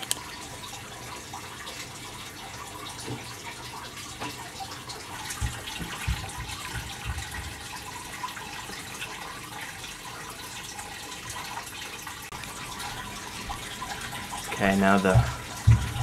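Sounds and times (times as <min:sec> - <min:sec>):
water trickling: 0:00.0 - 0:16.0
soft low thumps: 0:05.2 - 0:07.6, 0:15.1 - 0:16.0.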